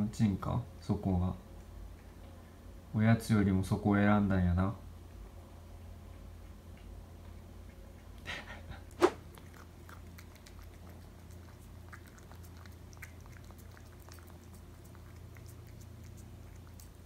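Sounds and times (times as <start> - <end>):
steady low hum: 0.0 - 17.0
cat crunching treats: 9.2 - 17.0.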